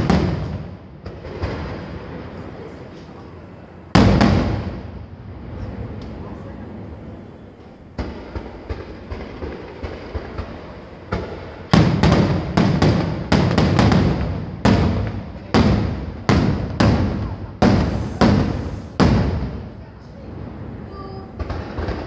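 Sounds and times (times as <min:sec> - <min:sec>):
firework shells bursting: 0:07.6 - 0:19.7.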